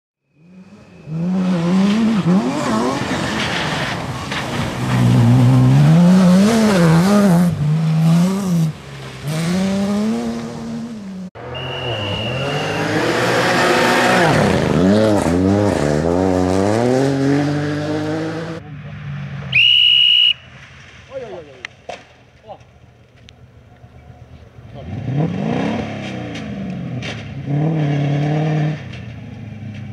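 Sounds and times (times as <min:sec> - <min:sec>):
rally cars revving on gravel: 0:00.3 - 0:19.7, 0:20.3 - 0:29.9
shrill steady whistle: 0:11.4 - 0:12.9, 0:19.5 - 0:20.5.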